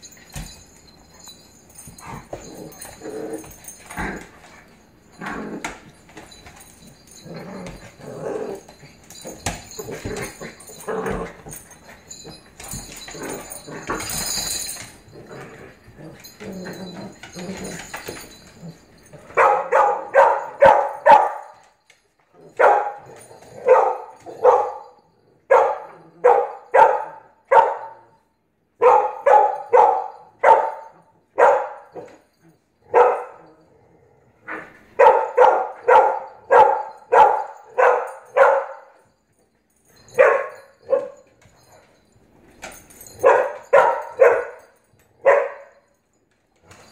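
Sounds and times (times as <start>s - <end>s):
dogs scuffling on wooden floor: 0.0s - 24.9s, 46.2s - 46.9s
dog barking: 19.4s - 21.6s, 22.6s - 23.0s, 23.6s - 24.9s, 25.5s - 28.0s, 28.8s - 31.8s, 32.9s - 33.3s, 35.0s - 38.9s, 40.2s - 41.2s, 43.2s - 45.7s.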